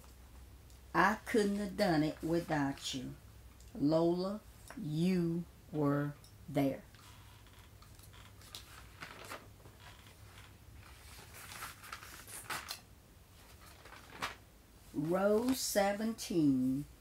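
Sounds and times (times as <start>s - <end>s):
faint rustling and handling: 6.8s - 16.9s.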